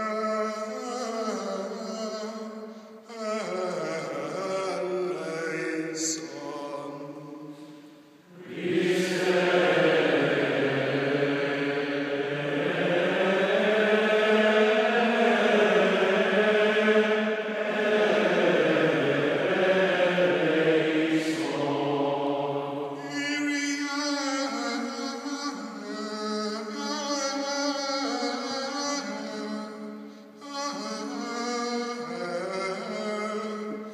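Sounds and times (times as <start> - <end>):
men singing a chant: 3.1 - 7.6, 8.3 - 29.8.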